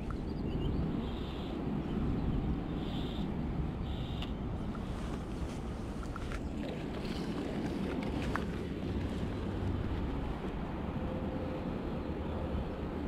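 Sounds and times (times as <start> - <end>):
river water flowing: 2.8 - 11.0.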